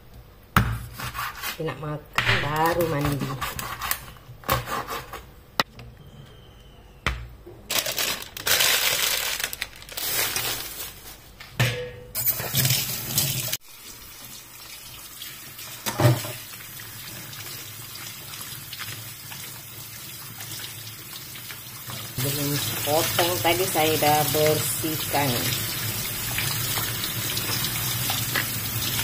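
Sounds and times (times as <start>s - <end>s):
tap water pouring and splashing: 12.4s - 29.0s.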